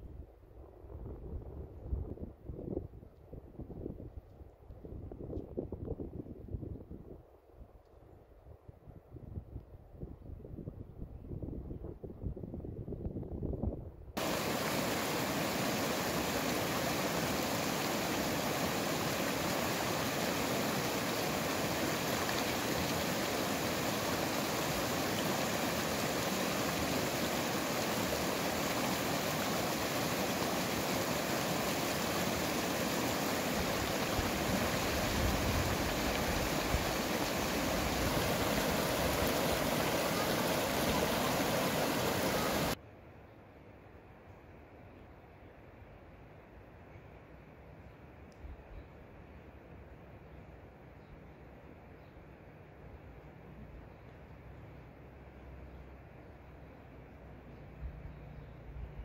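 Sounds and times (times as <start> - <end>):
stream rushing over rocks: 14.2 - 42.8.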